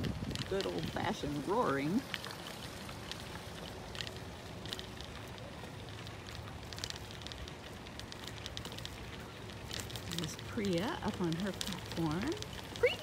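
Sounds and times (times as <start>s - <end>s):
wind on microphone: 0.0s - 1.3s
bicycle tyres rolling on gravel: 0.0s - 13.0s
grit crackling under tyres: 0.0s - 13.0s.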